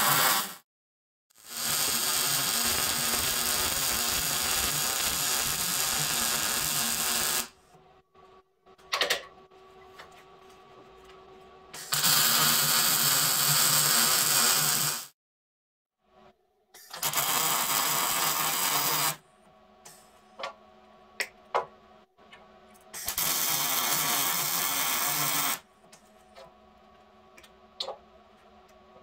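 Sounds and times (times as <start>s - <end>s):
welder crackling buzz: 0.0s - 0.6s, 1.4s - 7.6s, 11.8s - 15.2s, 16.9s - 19.2s, 23.0s - 25.6s.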